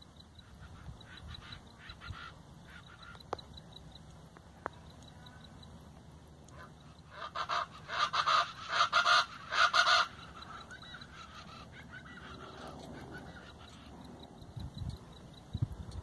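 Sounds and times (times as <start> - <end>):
bird honking calls: 0.0 - 3.5, 6.5 - 14.5.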